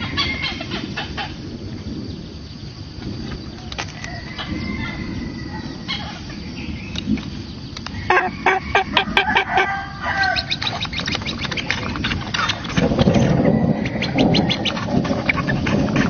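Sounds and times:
hornbills calling: 8.0s - 16.0s.

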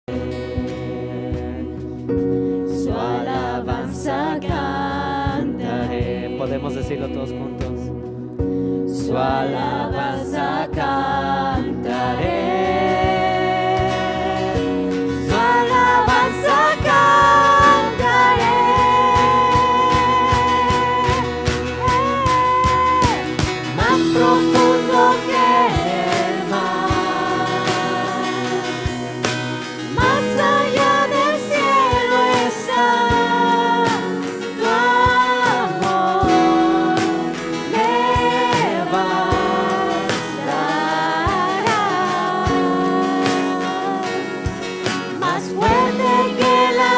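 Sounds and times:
held chords: 9.2s - 46.9s
person singing: 11.6s - 44.5s, 45.1s - 46.9s
steady drum beat: 12.2s - 46.9s.

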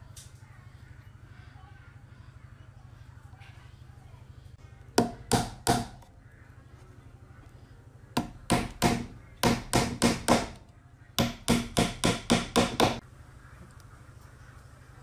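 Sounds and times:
hammer striking nails into wood: 5.0s - 6.0s, 8.2s - 10.6s, 11.2s - 13.0s.

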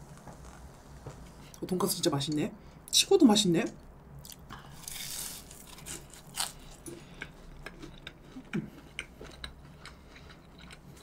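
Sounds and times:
chewing crispy food: 4.2s - 11.0s.

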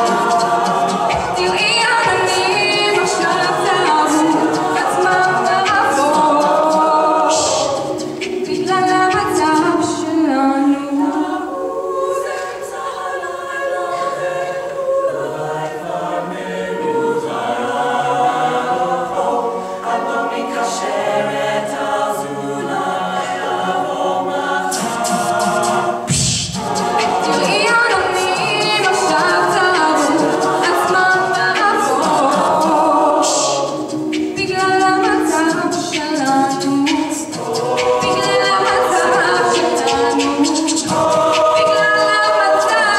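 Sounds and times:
a cappella group singing in harmony: 0.0s - 42.9s
woman singing into a microphone: 1.2s - 7.7s, 8.5s - 14.4s, 27.2s - 33.5s, 34.4s - 37.3s, 38.0s - 42.9s.

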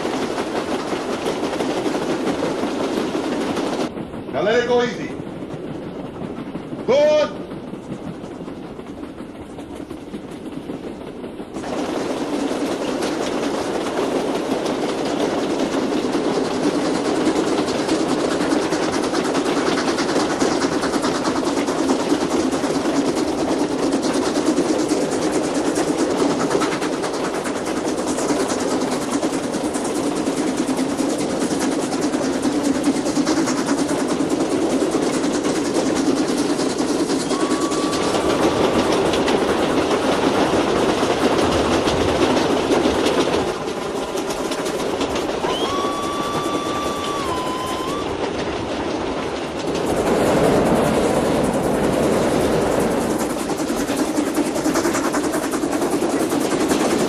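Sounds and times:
steam train wheels clattering on rails: 0.0s - 57.0s.

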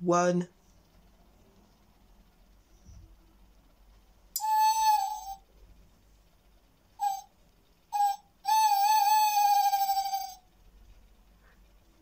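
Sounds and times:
clock owl hoots: 4.4s - 5.5s, 7.0s - 7.3s, 7.9s - 10.5s.

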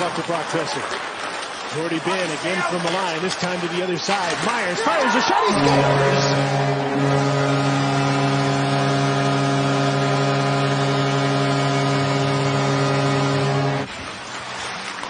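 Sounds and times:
arena goal horn blast: 5.4s - 13.9s.

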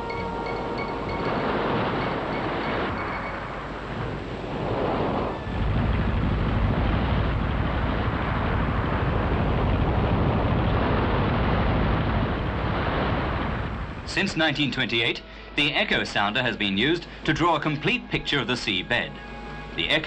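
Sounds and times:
sea waves washing: 0.0s - 9.8s
wind: 0.0s - 20.0s.

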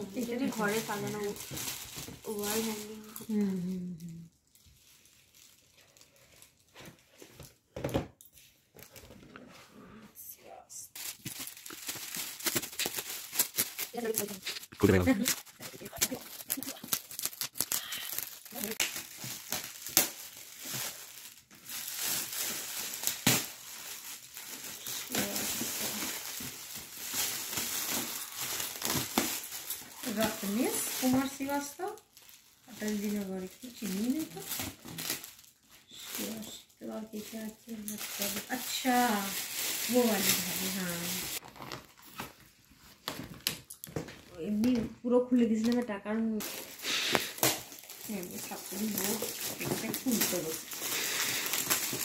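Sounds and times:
foil and plastic crinkling: 0.0s - 7.7s, 10.9s - 44.9s, 45.5s - 52.0s
cardboard and paper rustling: 0.0s - 9.8s, 11.0s - 52.0s.

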